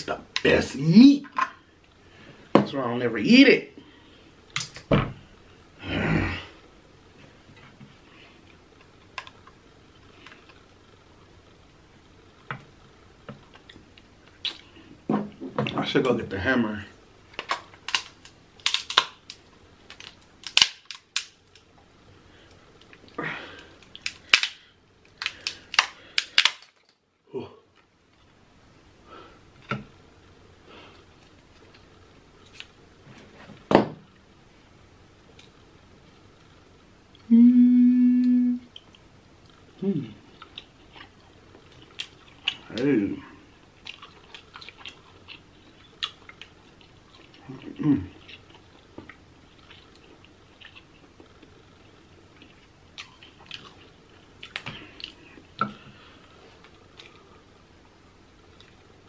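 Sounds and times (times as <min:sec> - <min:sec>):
crab shell cracking by hand: 0:17.4 - 0:21.7, 0:23.8 - 0:27.0.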